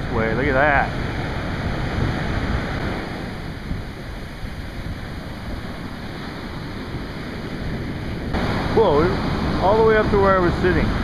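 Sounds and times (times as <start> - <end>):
foamy wash surging: 0.0 - 11.0
waves breaking: 0.0 - 11.0
wind rumbling on microphone: 0.0 - 11.0.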